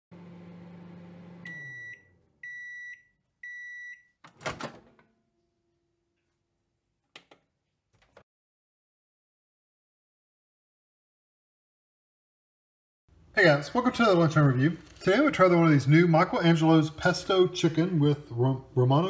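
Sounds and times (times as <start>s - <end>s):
microwave oven humming: 0.1s - 2.7s
microwave beeps: 1.1s - 4.2s.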